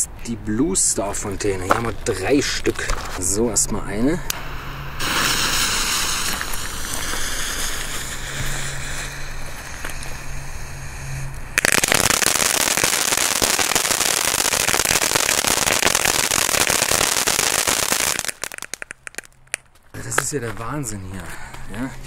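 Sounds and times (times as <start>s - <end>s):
firework crackling spray of sparks: 4.3s - 19.3s
firework fuse hissing: 4.3s - 19.3s.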